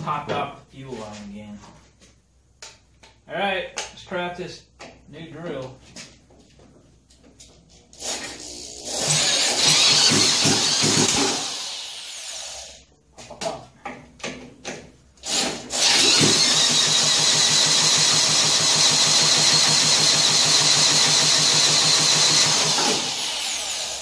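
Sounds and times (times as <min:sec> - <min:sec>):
electric drill spinning: 0:07.9 - 0:12.8, 0:15.2 - 0:24.0.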